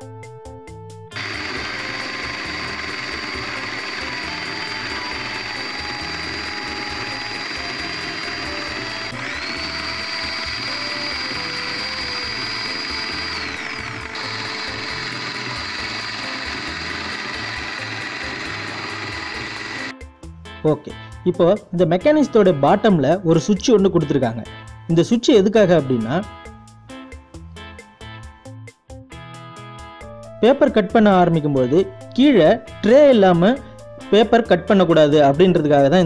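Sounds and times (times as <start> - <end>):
high motor whine: 1.2 - 19.9
paper shredder motor rattling: 1.2 - 19.9.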